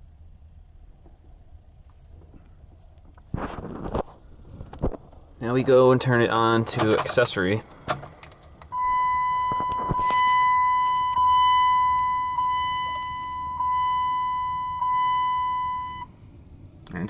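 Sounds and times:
dashboard warning chime: 0:08.7 - 0:16.1.

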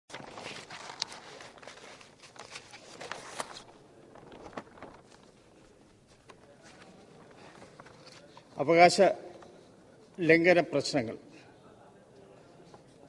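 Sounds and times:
papers rustling: 0:00.1 - 0:08.6.

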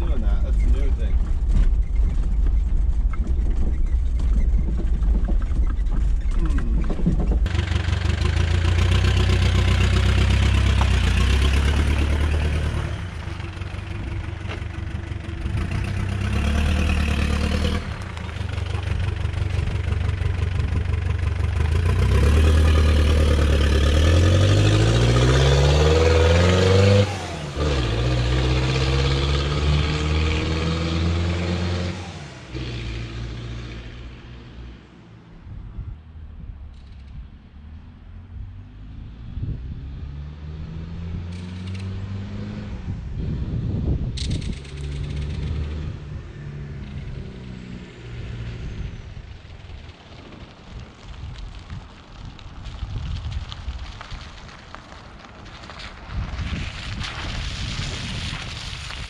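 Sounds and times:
diesel engine rumbling: 0:00.0 - 0:59.0
engine revving while accelerating: 0:07.5 - 0:34.6, 0:38.7 - 0:49.0.

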